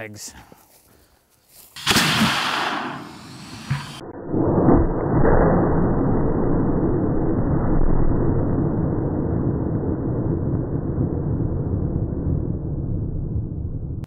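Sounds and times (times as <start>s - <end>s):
air cannon blast: 1.8s - 6.8s
slowed-down low rumble: 2.1s - 14.0s.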